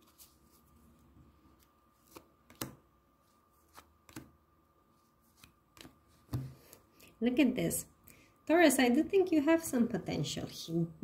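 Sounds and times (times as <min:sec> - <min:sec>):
cards slapping on table: 0:02.1 - 0:02.8, 0:03.7 - 0:04.3.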